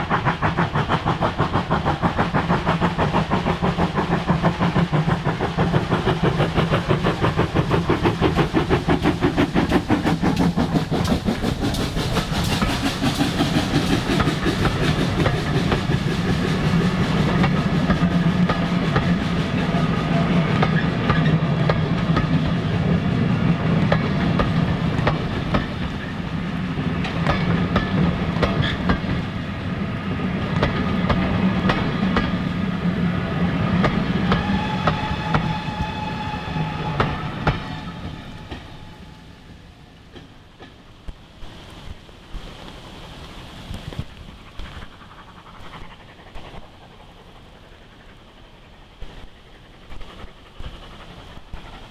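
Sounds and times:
steam train passing: 0.0s - 51.9s.

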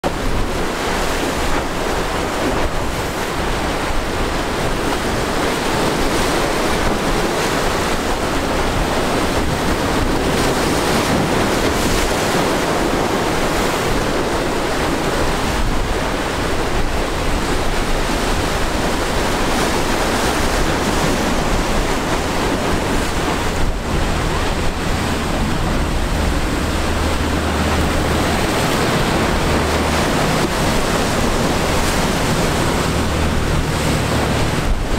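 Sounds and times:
boat engine drone: 0.0s - 34.9s
surf rushing and breaking: 0.0s - 34.9s
wind buffeting microphone: 0.0s - 34.9s.

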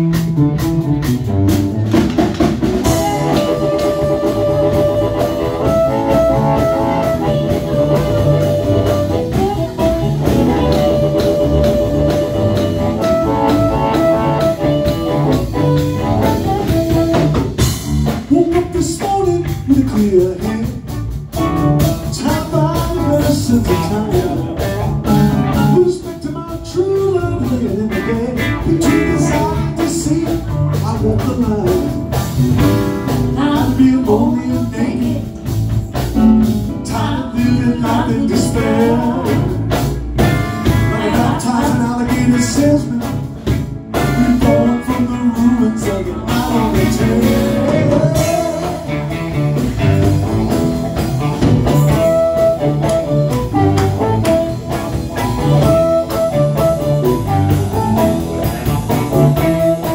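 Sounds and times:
live blues band: 0.0s - 59.9s
man singing: 2.8s - 8.5s, 18.1s - 21.1s, 21.9s - 32.3s, 33.2s - 35.6s, 36.4s - 40.0s, 40.6s - 49.6s
amplified blues harmonica: 2.8s - 17.4s, 51.1s - 59.9s.

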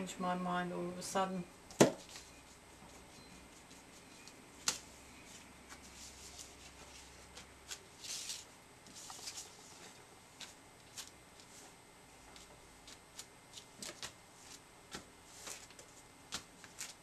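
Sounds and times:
paper rustling: 2.9s - 11.7s, 12.3s - 17.0s.

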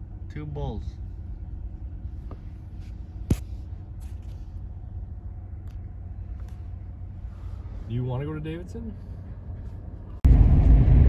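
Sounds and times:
pickup truck engine rumble: 0.0s - 11.0s.

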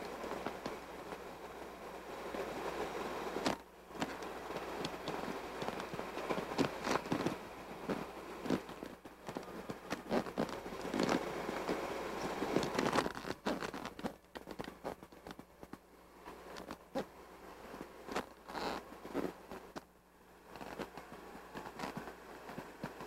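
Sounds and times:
crackles and sharp clicks: 0.0s - 17.1s, 17.7s - 23.0s
creek water rushing over rocks: 0.0s - 23.0s.

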